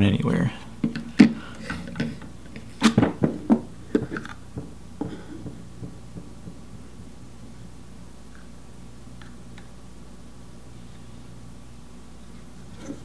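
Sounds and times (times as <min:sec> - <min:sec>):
taps on wooden tabletop: 0:03.0 - 0:06.9.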